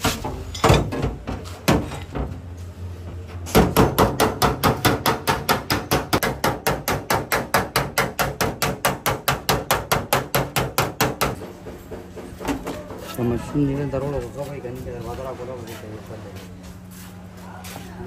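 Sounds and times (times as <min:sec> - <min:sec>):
hammer on sheet metal: 0:03.5 - 0:11.8.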